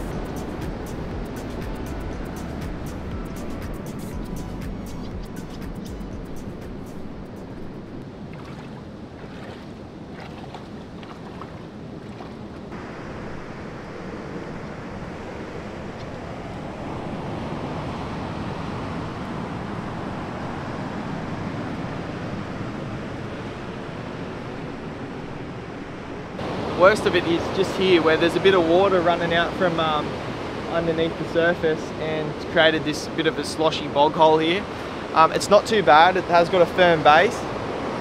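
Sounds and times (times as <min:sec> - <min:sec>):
ocean surf rushing: 0:06.1 - 0:38.0
wind buffeting the microphone: 0:07.0 - 0:26.4.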